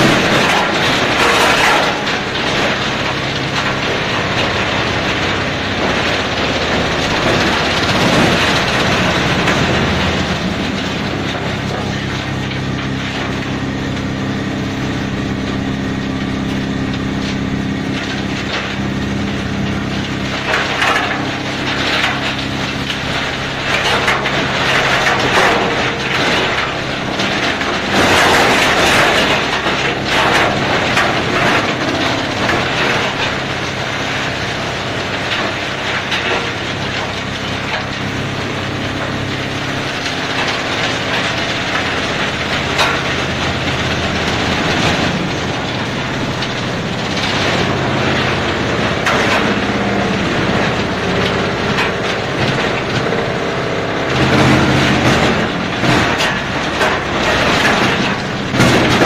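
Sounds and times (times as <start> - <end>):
stump grinder humming: 0.0 - 59.0
wood cracking and splintering: 0.0 - 59.0.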